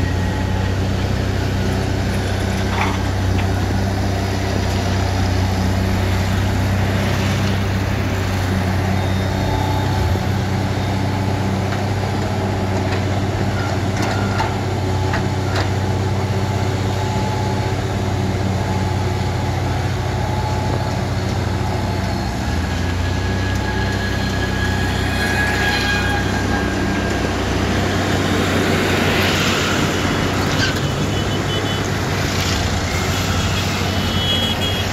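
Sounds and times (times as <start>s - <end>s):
excavator diesel engine: 0.0s - 34.9s
higher whining tones: 22.0s - 34.9s.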